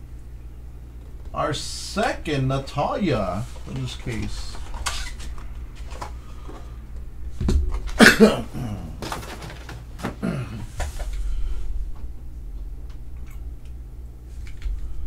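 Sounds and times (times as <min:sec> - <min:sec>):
man's wordless vocal sounds: 0:08.0 - 0:09.0
low hum: 0:10.2 - 0:15.0.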